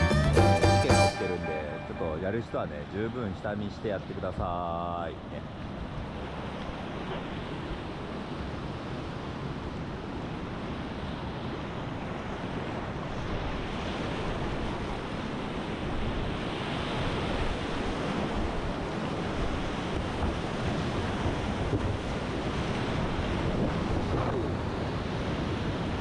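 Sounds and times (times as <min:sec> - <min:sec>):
wind buffeting microphone: 0:05.6 - 0:26.0.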